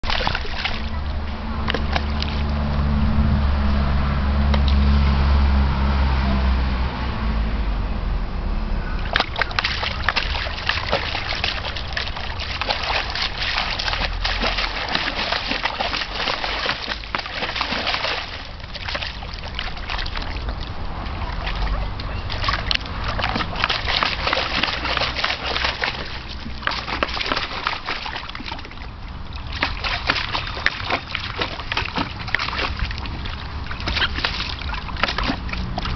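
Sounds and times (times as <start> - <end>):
dog splashing water in a tub: 0.0 - 4.7, 9.0 - 35.9
low rumble: 0.0 - 14.8.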